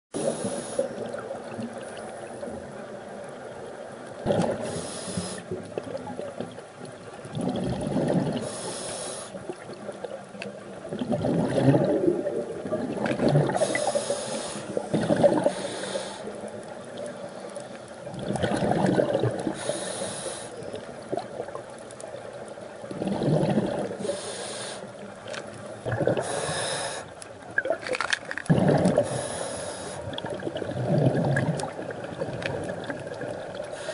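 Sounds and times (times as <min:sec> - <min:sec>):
regulator inhale hiss: 0:00.2 - 0:01.1, 0:04.6 - 0:05.6, 0:08.4 - 0:09.5, 0:13.6 - 0:16.5, 0:19.5 - 0:20.8, 0:24.0 - 0:25.0, 0:26.2 - 0:27.2, 0:29.0 - 0:30.2, 0:33.7 - 0:33.9
exhaled bubbles rushing: 0:04.2 - 0:04.8, 0:07.2 - 0:08.5, 0:10.8 - 0:14.0, 0:14.8 - 0:15.6, 0:18.1 - 0:19.7, 0:22.8 - 0:24.1, 0:25.8 - 0:26.6, 0:27.5 - 0:29.3, 0:30.0 - 0:33.8.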